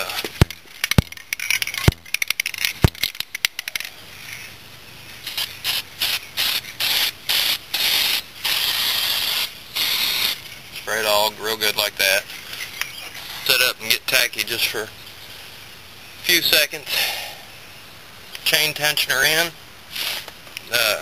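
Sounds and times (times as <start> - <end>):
rubbing with sharp clicks: 0.0 - 4.5
aerosol can spraying: 5.2 - 10.4, 19.9 - 20.4.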